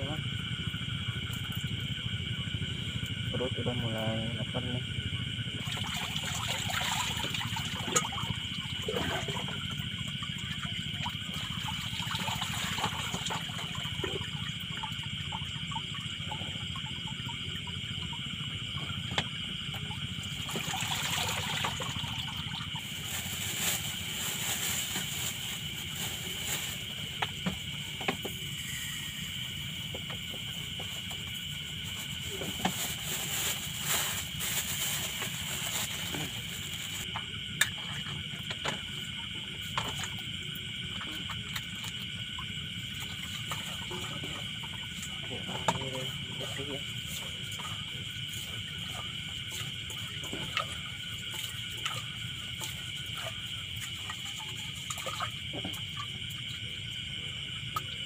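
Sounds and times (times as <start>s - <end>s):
crickets chirping: 0.0s - 58.0s
night insects chorus: 0.0s - 58.0s
hands sloshing rice in water: 20.3s - 24.1s
plastic bag crinkling: 22.8s - 26.8s, 32.7s - 37.0s.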